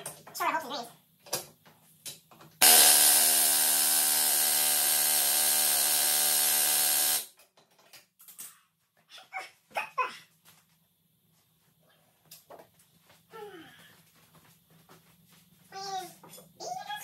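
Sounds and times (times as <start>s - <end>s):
pneumatic air tool hammering: 2.6s - 7.3s.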